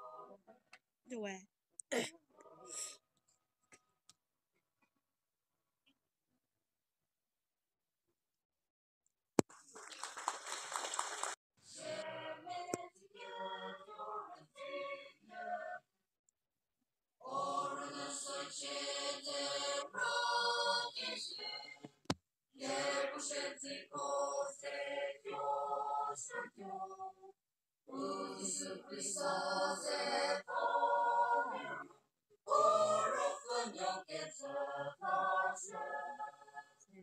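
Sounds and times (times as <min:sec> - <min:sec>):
large choir singing: 0:00.0 - 0:00.3, 0:11.7 - 0:15.8, 0:17.2 - 0:21.8, 0:22.6 - 0:27.3, 0:27.9 - 0:31.9, 0:32.5 - 0:36.8.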